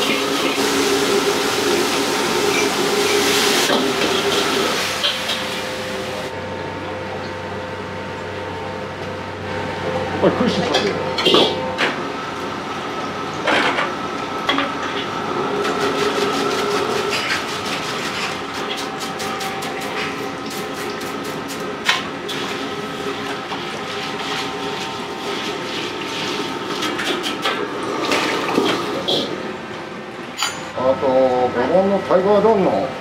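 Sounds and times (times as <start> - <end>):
steady kitchen hum: 0.0 - 33.0.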